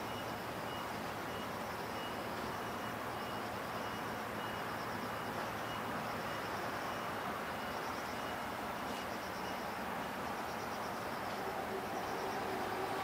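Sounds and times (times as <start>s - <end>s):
outdoor background noise: 0.0s - 13.0s.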